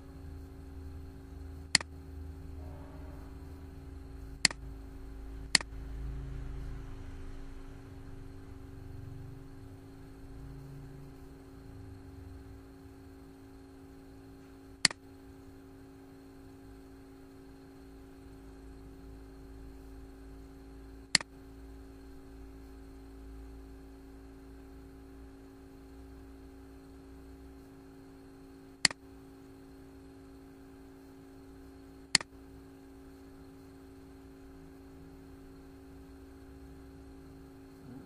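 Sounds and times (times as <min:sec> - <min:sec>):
electrical hum: 0:00.0 - 0:38.0
computer mouse clicks: 0:01.7 - 0:01.9, 0:05.5 - 0:05.7, 0:32.1 - 0:32.3.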